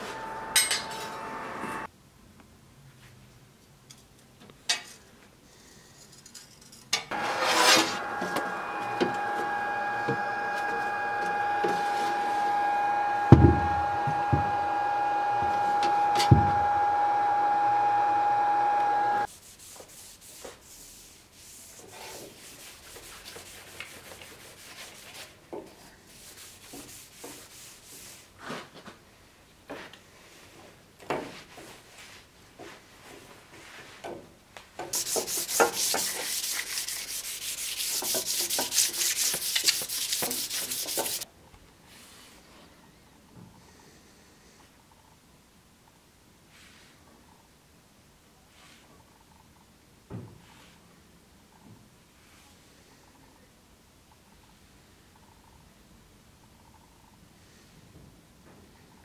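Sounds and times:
machine humming with whine: 0:00.0 - 0:01.9, 0:07.1 - 0:19.3
pad rubbing steel blade: 0:07.1 - 0:16.8, 0:35.0 - 0:41.2.

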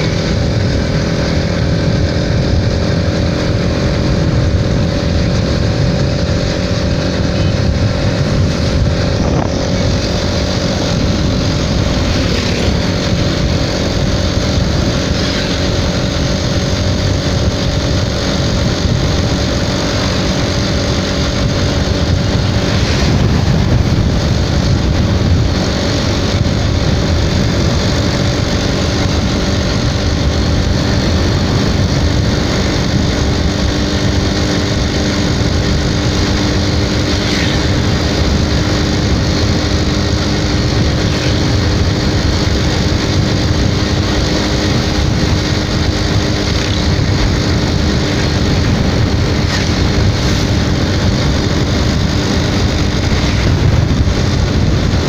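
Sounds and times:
motorcycle engine running: 0:00.0 - 0:55.0
wind noise on microphone: 0:00.0 - 0:55.0.

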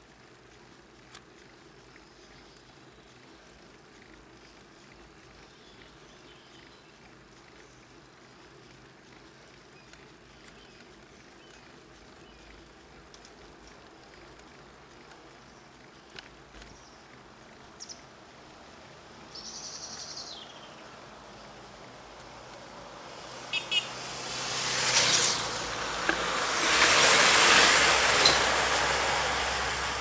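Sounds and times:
bicycle tyres on road: 0:00.0 - 0:30.0
faint wind: 0:00.0 - 0:30.0
bird chirps: 0:19.3 - 0:20.8.

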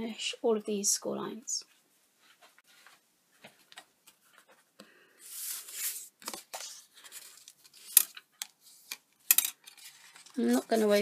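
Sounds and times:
card sliding across mat: 0:05.2 - 0:07.3.

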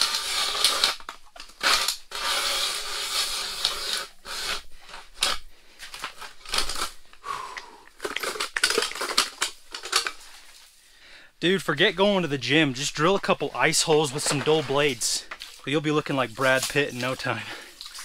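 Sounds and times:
ice auger grinding through ice: 0:00.0 - 0:01.0, 0:01.6 - 0:05.4.

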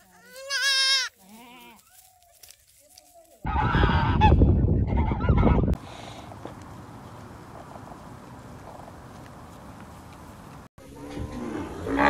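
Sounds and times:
goat kid bleating: 0:00.0 - 0:01.9.

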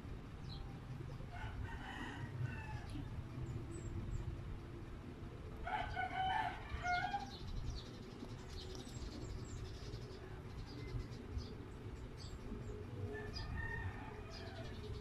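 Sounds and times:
low steady hum: 0:00.0 - 0:15.0
rooster crowing: 0:01.3 - 0:03.2, 0:05.6 - 0:07.4, 0:13.0 - 0:15.0.

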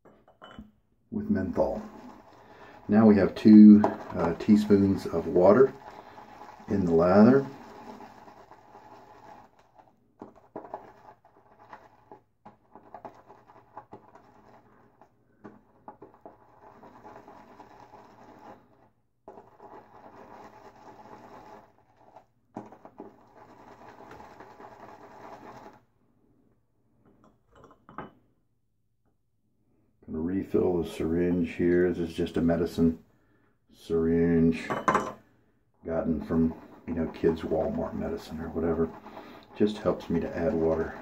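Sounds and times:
shaving brush swishing lather: 0:01.4 - 0:09.6, 0:36.0 - 0:41.0.

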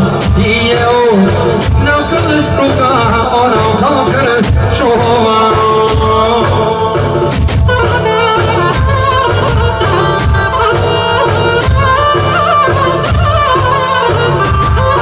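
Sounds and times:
man singing into microphone: 0:00.0 - 0:07.4
amplified live dance music: 0:00.0 - 0:15.0.

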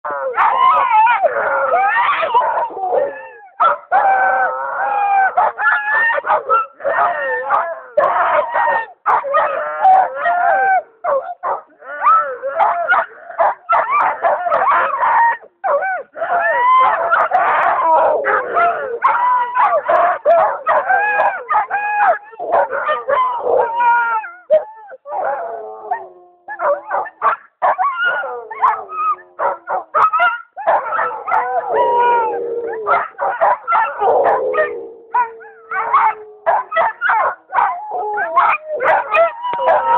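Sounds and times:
sled dogs howling and yipping: 0:00.0 - 0:39.9.

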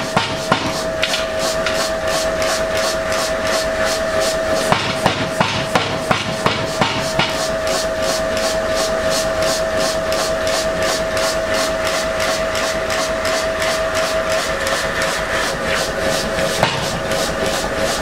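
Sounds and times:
hammer striking metal on anvil: 0:00.0 - 0:01.3, 0:04.7 - 0:07.4, 0:16.6 - 0:17.0
machine hum with faint pulsing: 0:00.0 - 0:18.0.

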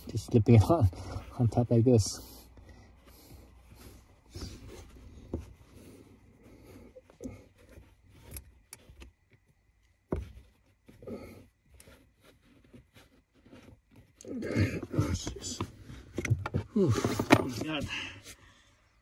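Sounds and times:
faint rustling and handling: 0:00.0 - 0:19.0.

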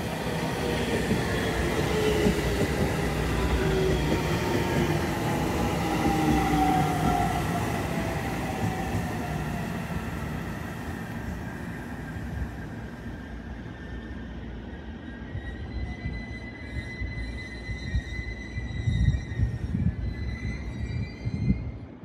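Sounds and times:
train wheels rumbling on rails: 0:00.0 - 0:13.8.

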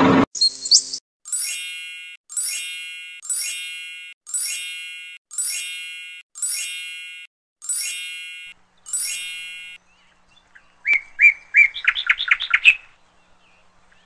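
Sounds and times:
bright chime: 0:01.3 - 0:09.8.

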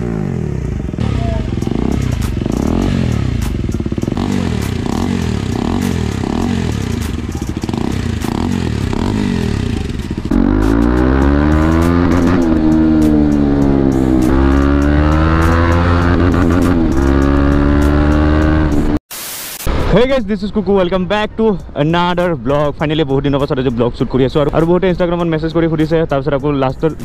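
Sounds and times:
motorcycle engine revving: 0:00.0 - 0:19.0.

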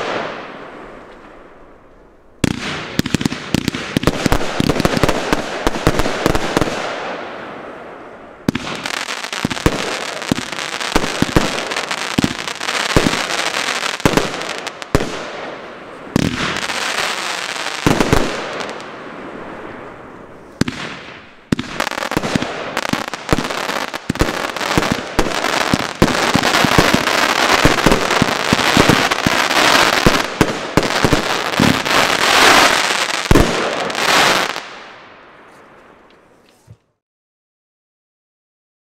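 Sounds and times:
firework crackling: 0:08.5 - 0:35.0.

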